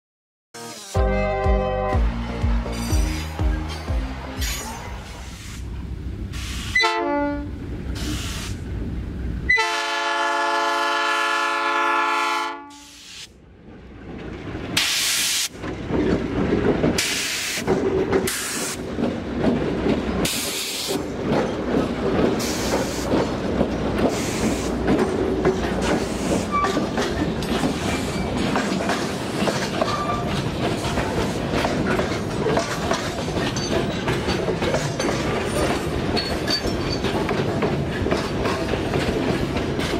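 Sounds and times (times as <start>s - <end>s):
locomotive air horn blast: 0.6s - 5.6s, 6.4s - 8.5s, 9.5s - 13.3s
train rolling rumble: 2.0s - 39.9s
wheels clicking over rail joints: 15.6s - 39.9s.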